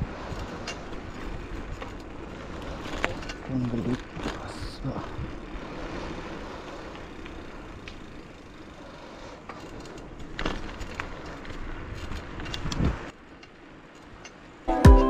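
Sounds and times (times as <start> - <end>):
bike rattling: 0.0 - 14.7
tyres rolling on asphalt: 0.0 - 14.7
wind on microphone: 12.4 - 13.1.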